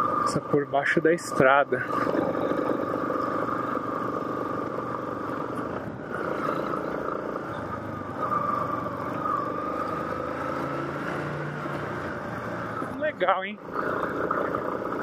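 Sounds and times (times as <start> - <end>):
steady high whine: 0.0 - 10.3
motorcycle engine running: 0.0 - 15.0.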